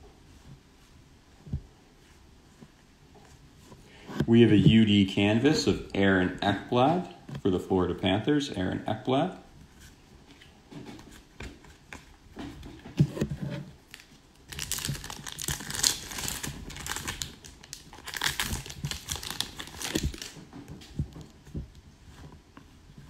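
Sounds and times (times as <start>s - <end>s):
plastic wrapping crinkling: 13.8s - 21.4s.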